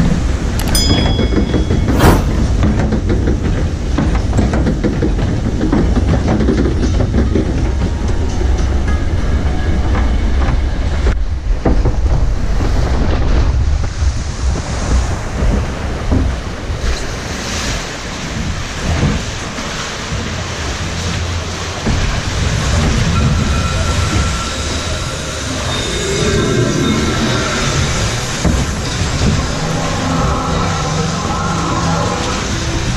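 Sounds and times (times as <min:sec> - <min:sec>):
wind buffeting microphone: 0:00.0 - 0:25.7
log flume boat rumbling: 0:00.0 - 0:32.9
rushing water: 0:00.0 - 0:32.9.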